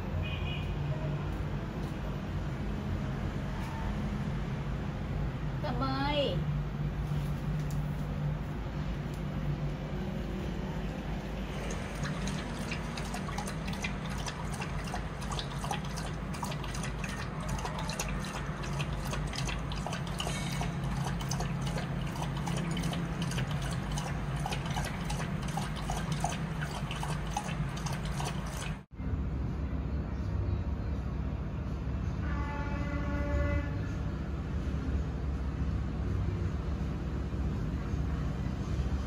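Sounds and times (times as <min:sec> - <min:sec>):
dog lapping water: 0:11.2 - 0:28.9.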